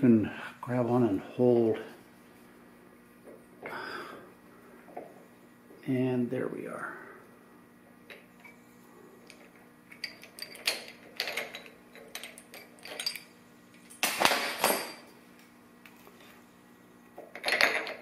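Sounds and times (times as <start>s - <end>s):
metal parts clinking on workbench: 9.9s - 15.1s, 17.4s - 18.0s.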